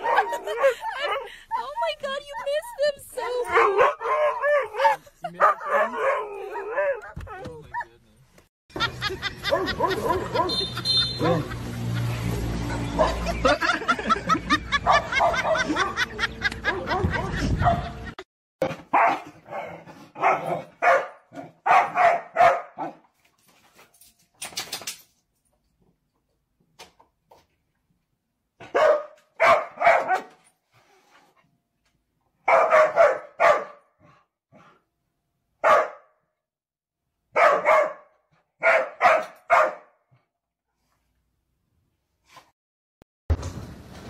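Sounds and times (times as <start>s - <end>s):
dog barking: 0.0s - 0.8s, 3.5s - 7.2s, 9.4s - 11.5s, 13.0s - 13.2s, 14.8s - 16.0s, 18.9s - 23.0s, 28.6s - 30.4s, 32.4s - 33.9s, 35.6s - 36.1s, 37.3s - 40.0s.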